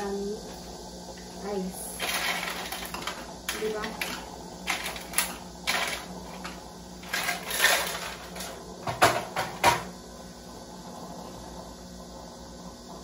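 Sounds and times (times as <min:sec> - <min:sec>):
ice cubes clinking into a cup: 0:02.0 - 0:08.6.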